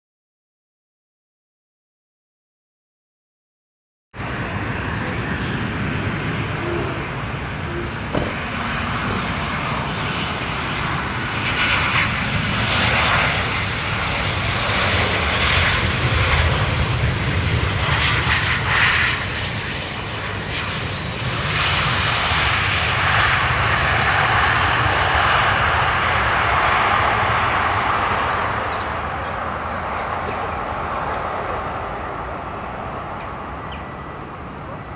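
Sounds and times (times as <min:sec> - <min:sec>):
jet engine noise: 0:04.2 - 0:34.9.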